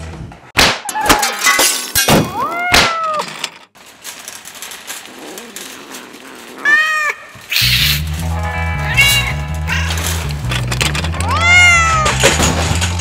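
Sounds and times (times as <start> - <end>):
cat meowing: 6.5 - 7.8, 11.2 - 12.2.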